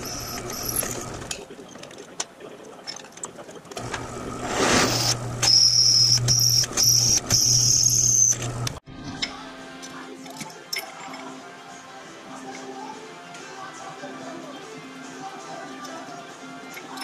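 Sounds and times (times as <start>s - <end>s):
drill press motor hum: 3.8s - 8.8s
high whine of drill cutting metal: 4.8s - 8.5s.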